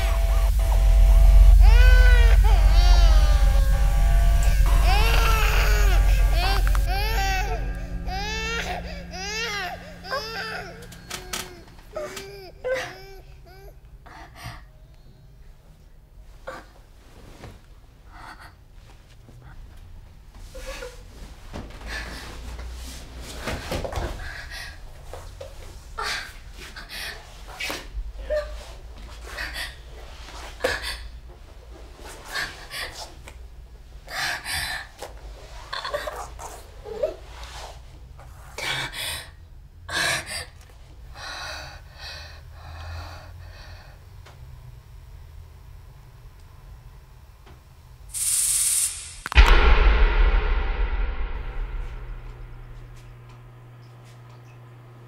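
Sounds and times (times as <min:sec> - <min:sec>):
low rumbling drone: 0:00.0 - 0:13.6, 0:48.8 - 0:53.8
low steady hum: 0:00.0 - 0:25.8, 0:49.0 - 0:55.0.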